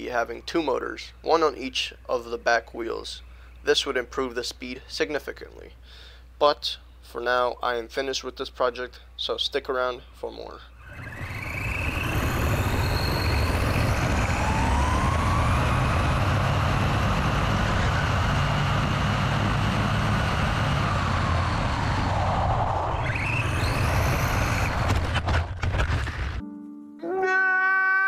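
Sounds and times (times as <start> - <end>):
electric motor whining: 10.8 - 26.4
wind and tyres on asphalt: 10.8 - 26.4.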